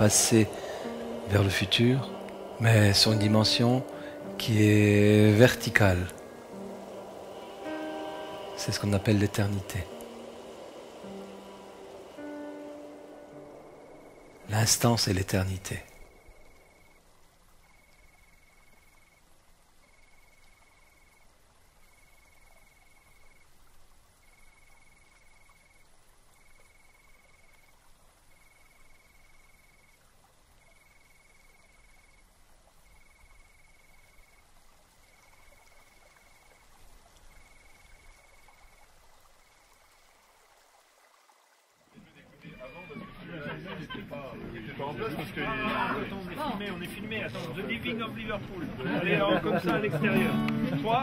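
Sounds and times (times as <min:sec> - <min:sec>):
outdoor ambience: 0:00.0 - 0:51.0
animal trill: 0:42.2 - 0:43.6.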